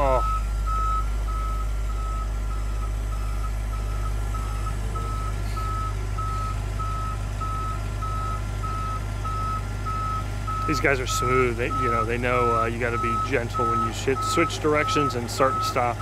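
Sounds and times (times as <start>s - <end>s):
forklift engine drone: 0.0s - 16.0s
forklift reversing alarm beeping: 0.0s - 16.0s.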